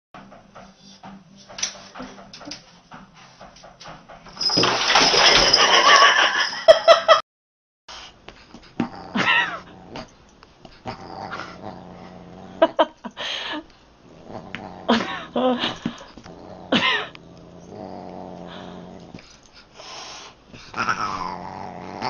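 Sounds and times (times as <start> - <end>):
dog and cat crying: 20.8 - 21.3.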